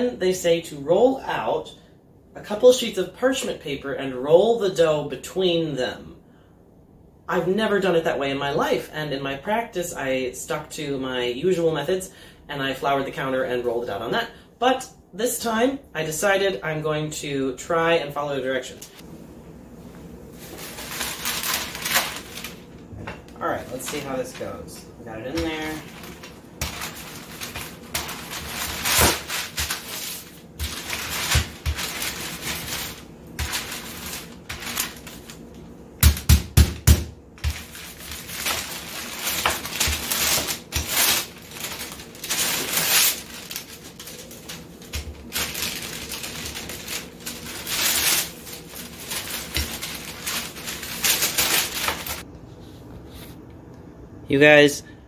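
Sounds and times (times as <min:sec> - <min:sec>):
parchment paper crinkling: 0:20.4 - 0:22.9, 0:23.5 - 0:35.6, 0:37.4 - 0:52.2.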